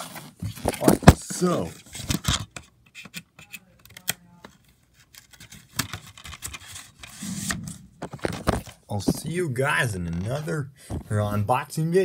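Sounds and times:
hard plastic clicks and taps: 2.2 - 4.6.

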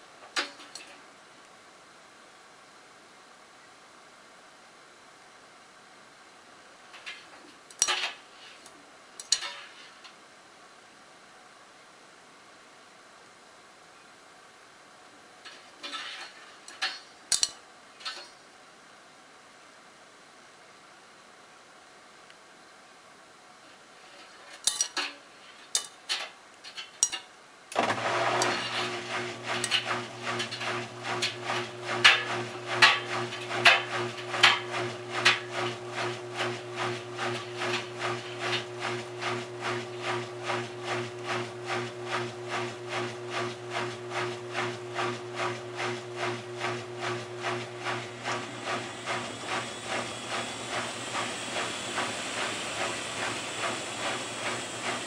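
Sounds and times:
washing machine motor humming: 27.8 - 55.0
washing machine spin hiss: 27.8 - 55.0.

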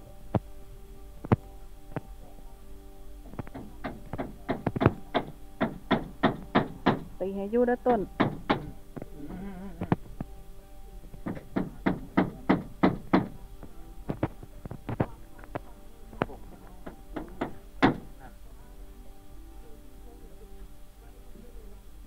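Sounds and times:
background music with sustained tones: 0.0 - 22.0
hammer driving nails into wood: 3.5 - 7.1, 8.2 - 8.8, 11.2 - 13.4, 16.8 - 18.1.

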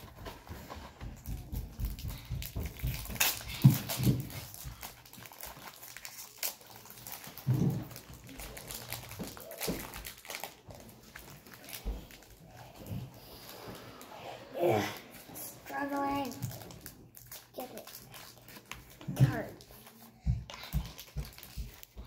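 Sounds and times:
foil wrapper crinkling: 1.8 - 12.6, 15.8 - 22.0.

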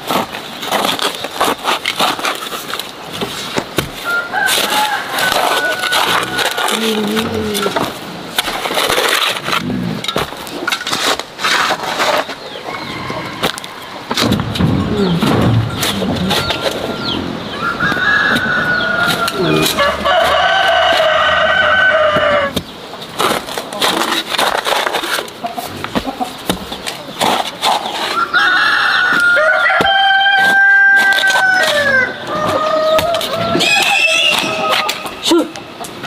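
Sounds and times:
rooster crowing: 4.0 - 6.8, 12.7 - 14.0, 16.5 - 22.5, 28.2 - 34.9.

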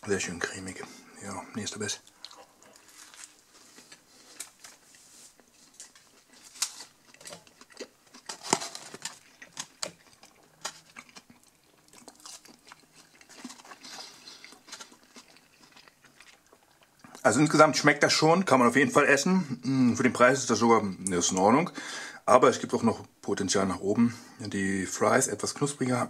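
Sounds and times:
person chewing food: 2.0 - 17.2.

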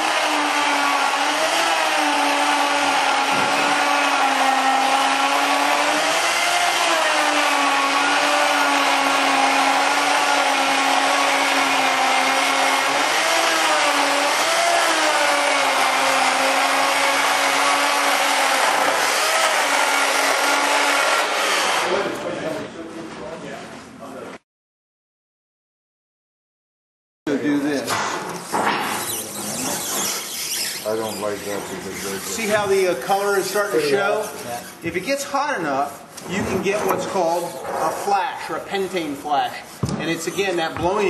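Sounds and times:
cutter motor running through foam: 0.0 - 22.1.

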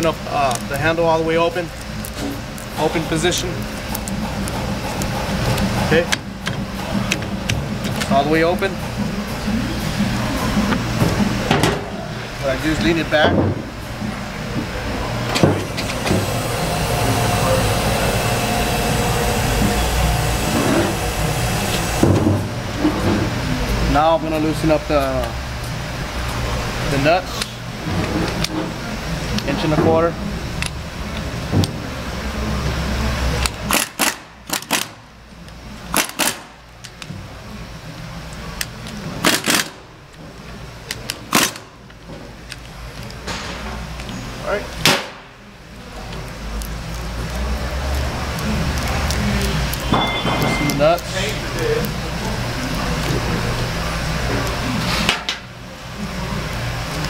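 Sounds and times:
shop machinery hum: 0.0 - 57.0
low steady drone: 1.2 - 27.0
pneumatic impact wrench bursts: 33.7 - 35.0, 35.9 - 36.6, 39.2 - 39.8, 41.3 - 41.8.

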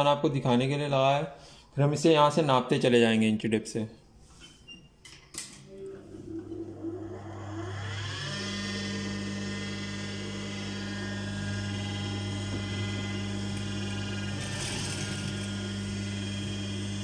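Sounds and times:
sewing machine motor whine: 5.7 - 17.0.

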